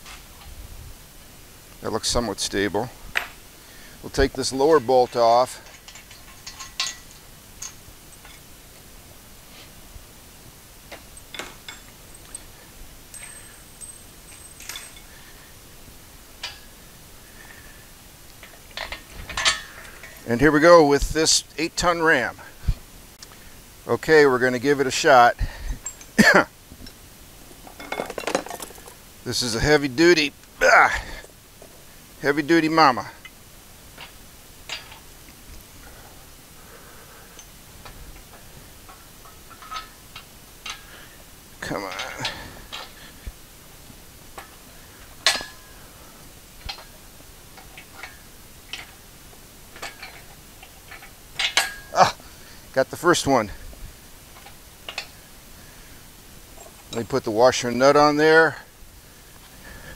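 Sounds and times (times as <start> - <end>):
metallic clinks of steel hardware: 4.5 - 8.5, 11.2 - 15.1
thin high metallic ring: 11.2 - 15.1.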